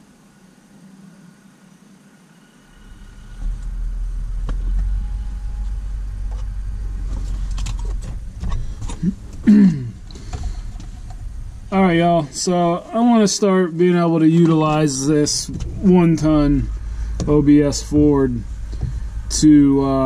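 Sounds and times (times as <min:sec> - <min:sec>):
vehicle engine rumbling: 0:00.0 - 0:20.0.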